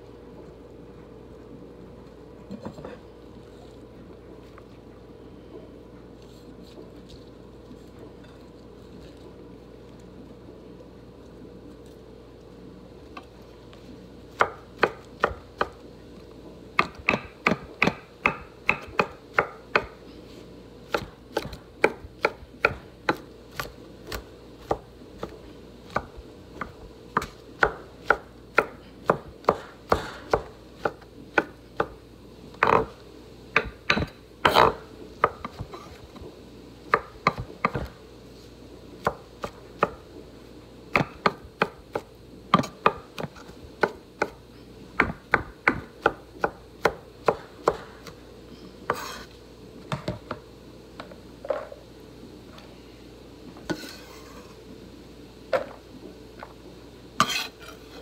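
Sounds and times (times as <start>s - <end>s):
knife chopping on wooden board: 14.4s - 15.8s, 16.8s - 20.0s, 20.9s - 32.0s, 32.6s - 32.9s, 33.6s - 36.0s, 36.9s - 38.0s, 40.9s - 44.4s, 45.0s - 48.2s.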